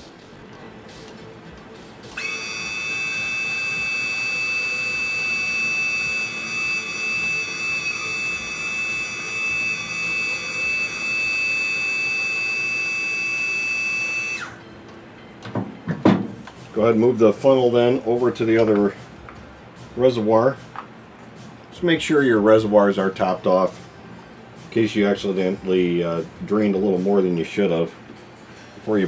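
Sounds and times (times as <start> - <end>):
brake pump whining: 2.1 - 14.6.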